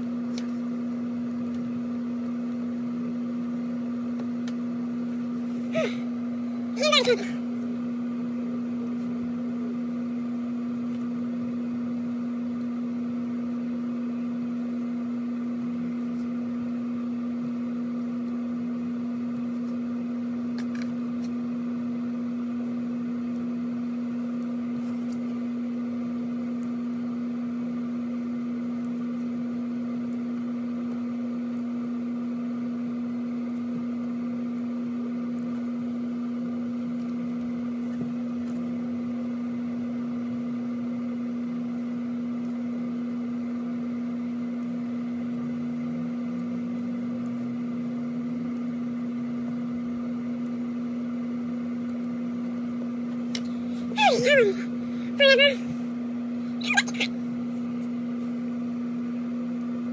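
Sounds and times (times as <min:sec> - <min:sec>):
low electrical hum: 0:00.0 - 0:59.9.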